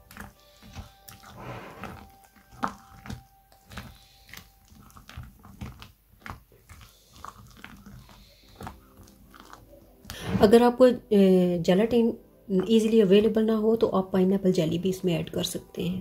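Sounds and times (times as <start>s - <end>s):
wet squelches of folding cream: 0.0s - 10.1s.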